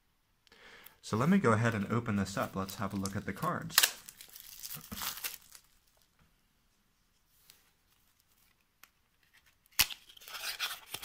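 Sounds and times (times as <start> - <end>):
cardboard crinkling and rustling: 2.4 - 6.1.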